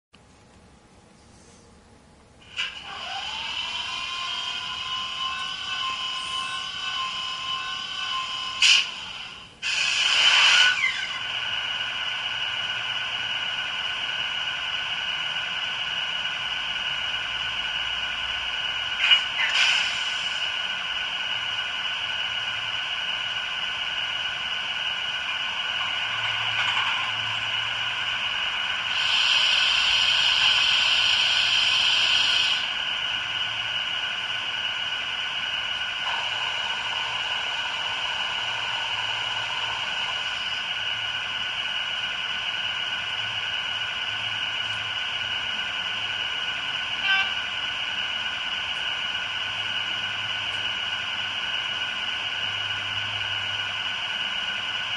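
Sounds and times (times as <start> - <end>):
tinny diesel engine hum: 0.4 - 54.9
hiss: 8.6 - 11.2, 19.0 - 20.6, 28.9 - 32.8.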